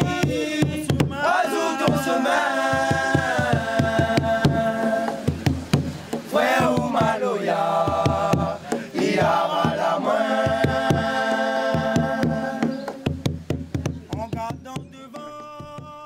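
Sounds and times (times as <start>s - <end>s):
men chanting together: 0.0s - 5.6s, 6.2s - 13.1s
hand drums beating: 0.0s - 16.0s.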